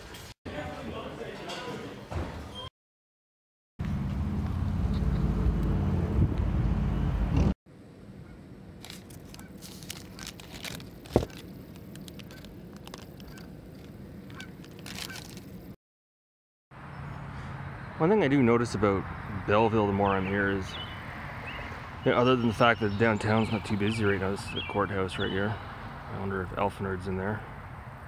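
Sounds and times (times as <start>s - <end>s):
paper wrapper rustling: 8.8s - 15.7s.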